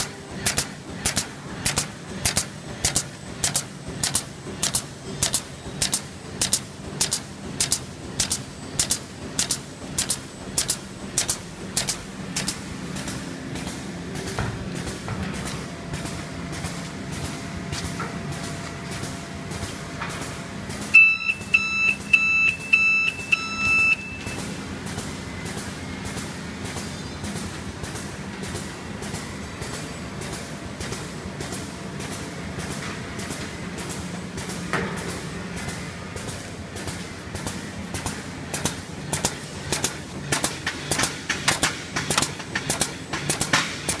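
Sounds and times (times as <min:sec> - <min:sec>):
bag-making machine running: 0:00.0 - 0:44.0
high-pitched electronic buzzer beeps: 0:21.0 - 0:24.4.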